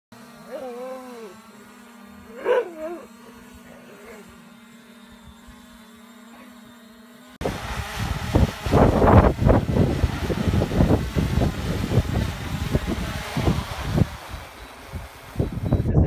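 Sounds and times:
drone propellers whirring: 0.1 - 16.0
steady hum: 0.2 - 16.0
dog barking: 2.3 - 4.4
wind on microphone: 7.4 - 16.0.

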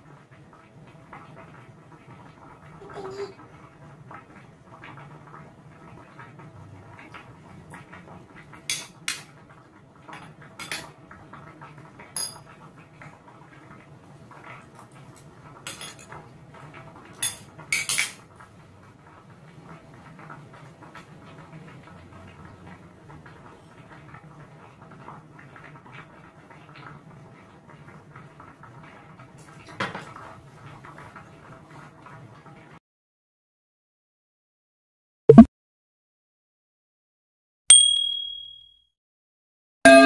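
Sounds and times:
cutlery clinking on ceramic bowl: 8.7 - 9.3, 10.1 - 10.9, 12.2 - 12.5, 15.7 - 16.2, 17.2 - 18.2.

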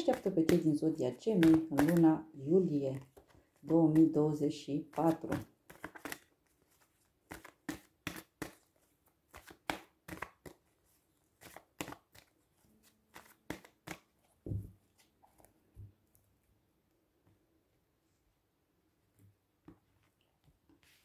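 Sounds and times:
cards being shuffled: 1.3 - 2.1, 4.8 - 15.6.

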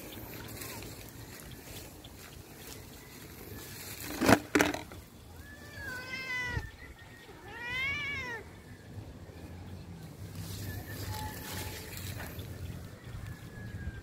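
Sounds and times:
cat meowing: 5.4 - 6.8, 7.4 - 8.4.

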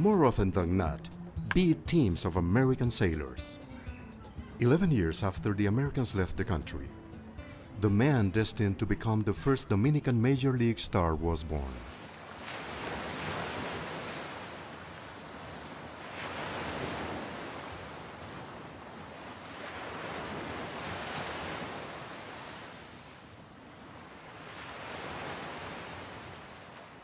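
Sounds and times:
sea surf on rocky shore: 11.6 - 27.0.

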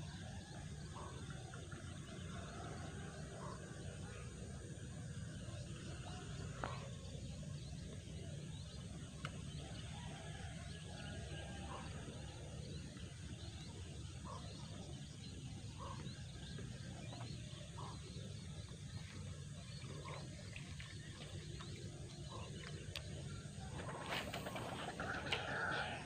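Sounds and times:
bird calls and chirps: 5.3 - 26.0.

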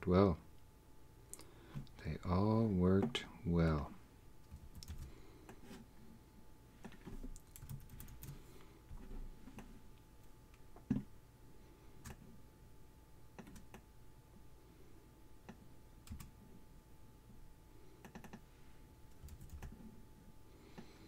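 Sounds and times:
computer mouse and keyboard clicks: 4.5 - 5.6, 6.8 - 8.4, 13.4 - 13.8, 18.0 - 18.4, 19.1 - 19.8.

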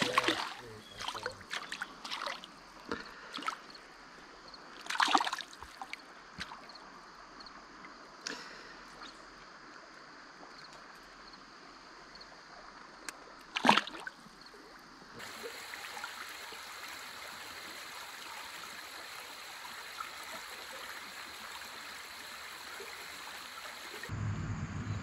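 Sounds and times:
fish splashing at surface: 0.0 - 2.5, 13.6 - 14.1
creek rushing: 0.0 - 2.6, 15.2 - 24.1.

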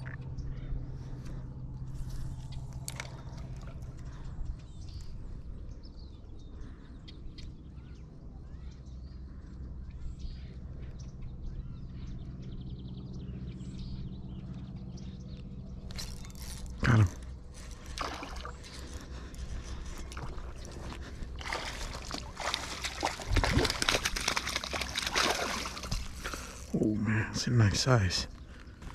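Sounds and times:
low steady hum: 0.0 - 28.9
fish thrashing water: 17.6 - 26.7.

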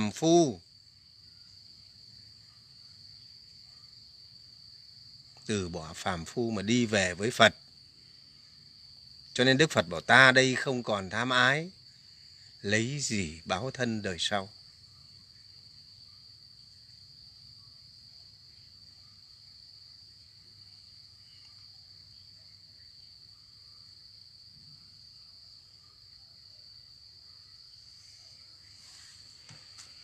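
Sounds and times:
crickets trilling: 0.0 - 30.0.

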